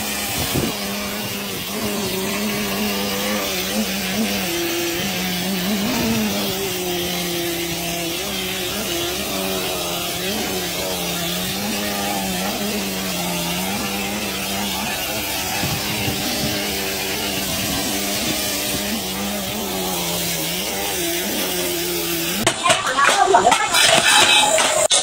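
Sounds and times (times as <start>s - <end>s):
compressed air hiss: 0.0s - 22.4s
motor drone: 0.0s - 22.5s.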